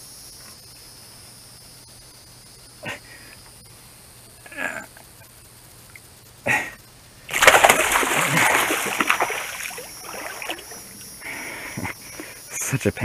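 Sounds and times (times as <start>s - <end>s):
fish splashing in water: 7.3s - 11.3s.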